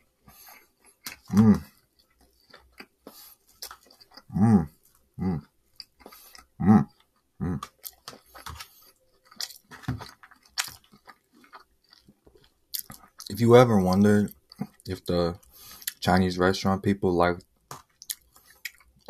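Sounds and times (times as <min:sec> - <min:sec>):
close chewing sounds: 0:00.0 - 0:16.0, 0:17.8 - 0:19.0
person humming: 0:01.3 - 0:01.7, 0:04.3 - 0:05.4, 0:06.6 - 0:07.7.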